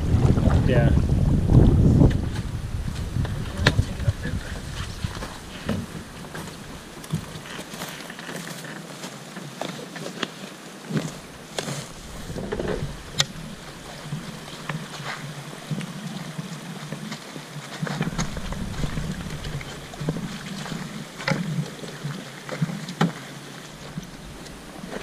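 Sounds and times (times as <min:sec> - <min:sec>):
running water: 0:00.0 - 0:25.0
canoe knocking on rocks: 0:11.0 - 0:15.9, 0:17.8 - 0:21.8.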